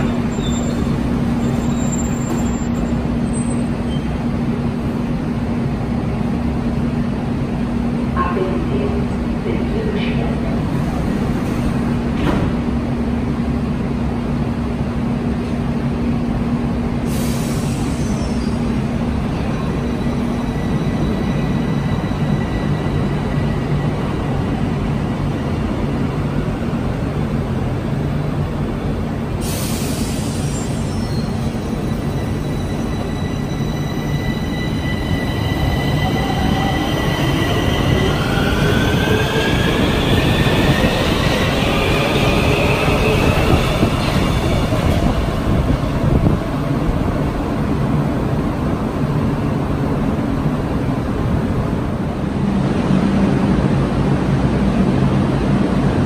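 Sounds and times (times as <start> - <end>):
metro train rumble: 0.0 - 56.0.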